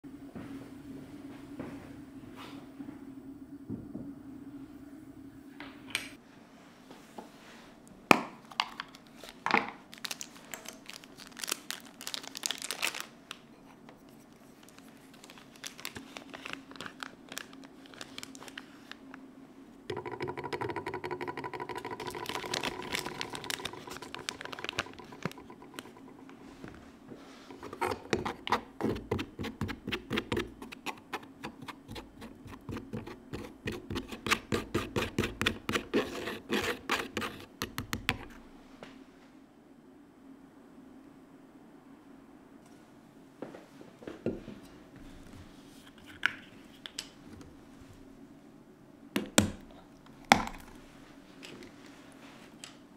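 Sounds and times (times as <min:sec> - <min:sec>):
powder scraped through mesh strainer: 0:21.7 - 0:26.6, 0:27.3 - 0:37.6.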